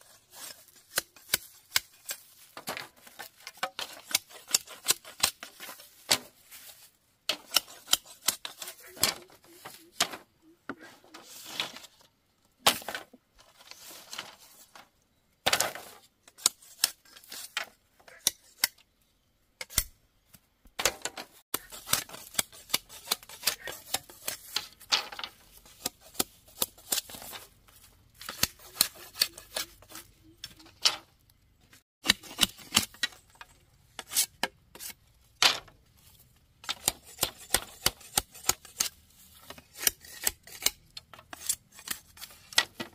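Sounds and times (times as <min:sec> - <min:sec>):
bamboo being cut clicks: 0:07.3 - 0:08.8, 0:28.2 - 0:30.6.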